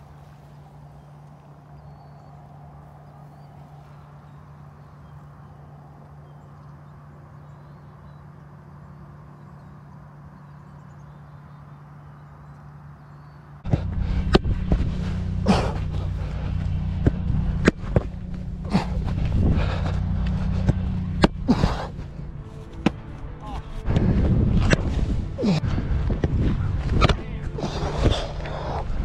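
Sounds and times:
low steady hum: 0:00.0 - 0:29.0
loud noisy rumble: 0:13.6 - 0:29.0
football hitting goalkeeper gloves: 0:15.5 - 0:19.2.

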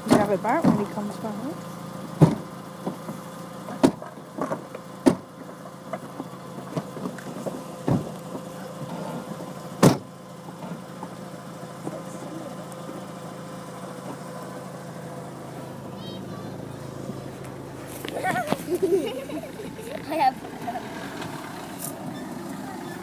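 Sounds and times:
car engine idling: 0:00.0 - 0:23.0
car door shutting: 0:02.2 - 0:03.1, 0:03.7 - 0:05.3, 0:05.9 - 0:10.8.

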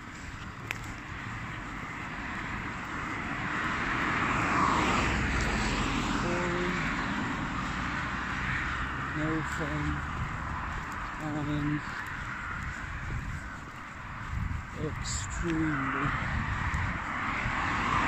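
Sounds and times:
passing engine drone: 0:01.7 - 0:14.1.

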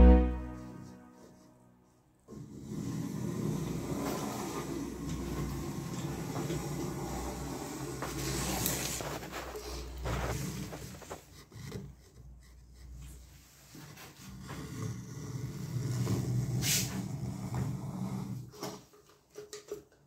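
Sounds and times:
caulking nozzle scraping: 0:02.3 - 0:13.3.

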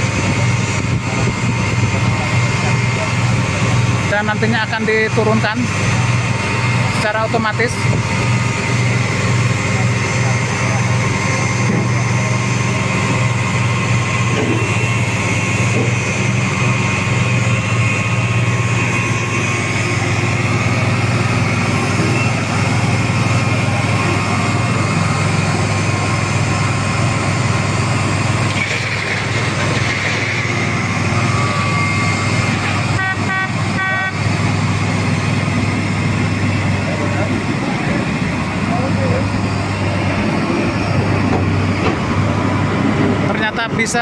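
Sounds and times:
machine engine low drone: 0:00.0 - 0:44.0
warning horn beeps: 0:14.7 - 0:22.7, 0:31.1 - 0:35.1.

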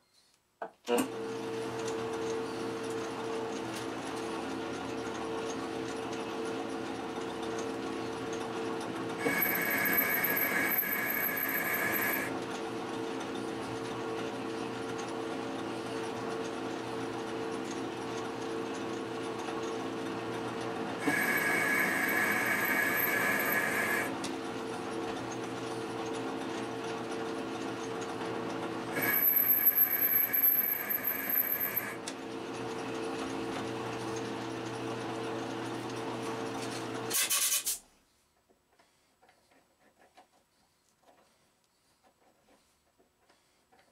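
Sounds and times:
metal lathe motor and gear hum: 0:01.4 - 0:37.0
high-pitched lathe whine: 0:09.2 - 0:12.4, 0:21.0 - 0:24.2, 0:28.9 - 0:32.0.

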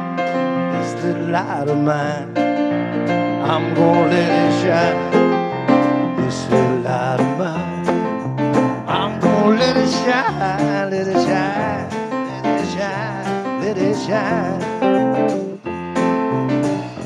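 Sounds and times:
drum kit: 0:00.0 - 0:17.0
guitar: 0:00.0 - 0:17.0
keyboard: 0:00.0 - 0:17.0
wavering lead melody: 0:07.8 - 0:17.0.

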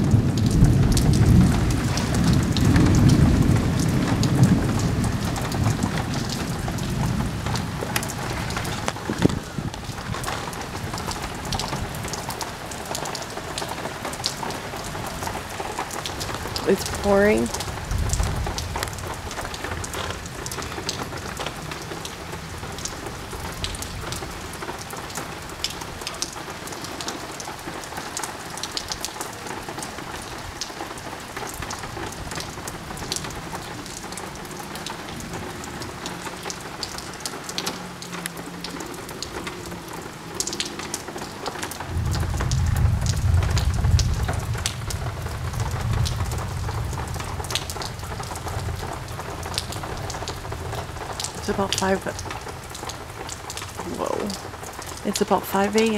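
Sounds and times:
thunder rumble: 0:00.0 - 0:26.0, 0:38.1 - 0:55.0
heavy rain pouring: 0:00.0 - 0:55.9
rain drop ticks: 0:00.0 - 0:55.9.

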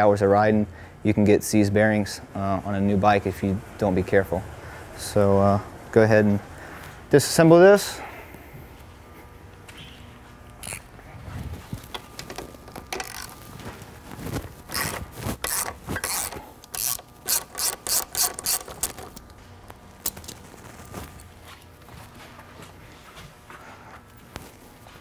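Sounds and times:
ratchet wrench clicking: 0:14.7 - 0:19.3.

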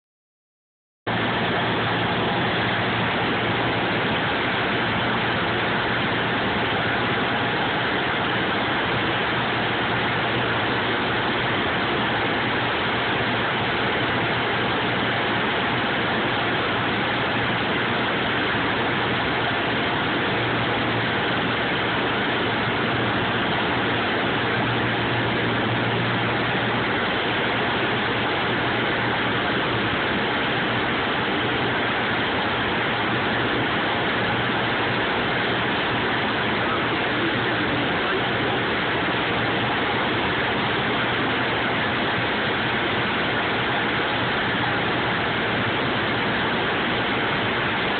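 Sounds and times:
propeller plane engine drone: 0:01.1 - 0:47.9
rushing air noise: 0:01.1 - 0:47.9.

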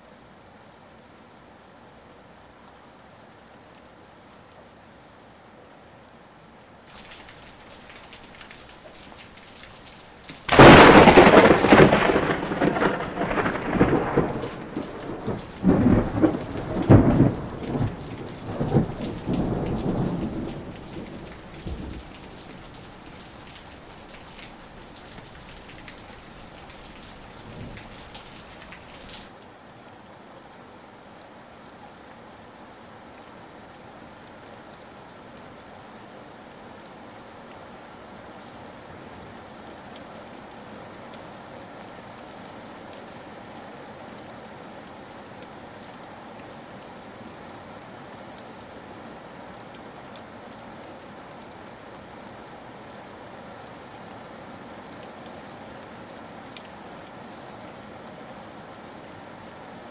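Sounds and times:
steady rain: 0:00.0 - 0:59.9
rolling thunder: 0:10.3 - 0:29.2.

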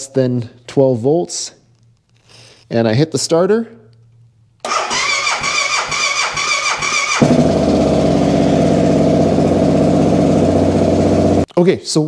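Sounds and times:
motorcycle starter motor cranking: 0:04.6 - 0:11.5
motorcycle engine idling: 0:06.8 - 0:11.5.

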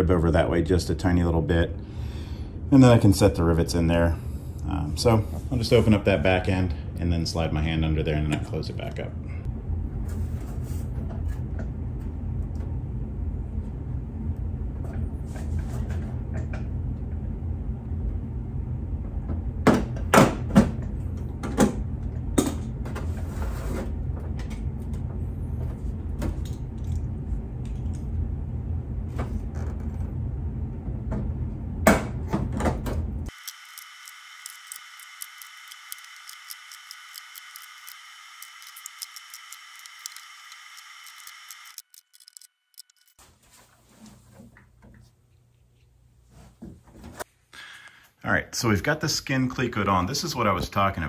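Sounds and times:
steady low hum: 0:23.9 - 0:43.0.

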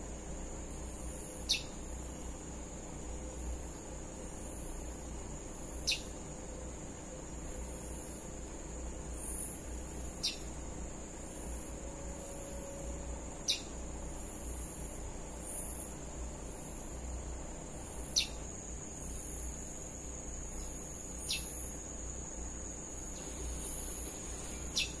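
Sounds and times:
faint chirps: 0:00.6 - 0:02.4, 0:03.1 - 0:10.6, 0:11.2 - 0:25.0
high-pitched insect buzzing: 0:18.0 - 0:25.0.

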